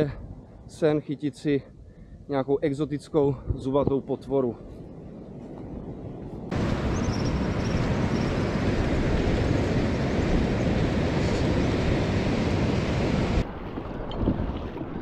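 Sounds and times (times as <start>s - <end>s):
wind: 0.0s - 15.0s
surf on beach: 6.5s - 15.0s
faint high bird chirps: 6.9s - 8.3s.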